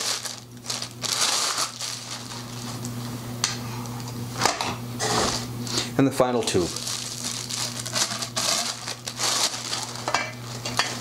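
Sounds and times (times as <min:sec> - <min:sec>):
plastic packaging crinkling: 0:00.0 - 0:03.1, 0:06.4 - 0:10.7.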